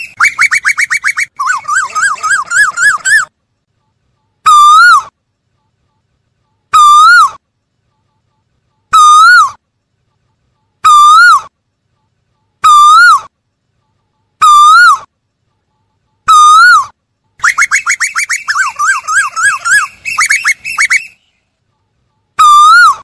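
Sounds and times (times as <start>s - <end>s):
bird whistled calls: 0.0s - 3.3s, 16.3s - 21.3s.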